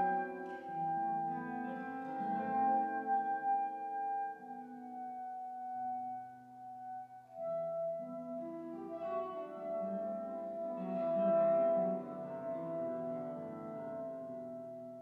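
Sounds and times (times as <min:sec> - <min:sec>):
plucked classical guitar: 0:00.0 - 0:15.0
soprano saxophone: 0:06.8 - 0:14.6.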